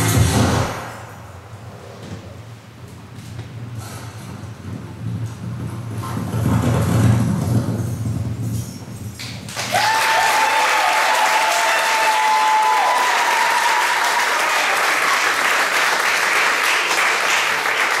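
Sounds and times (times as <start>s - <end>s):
audience applauding and cheering: 9.5s - 18.0s.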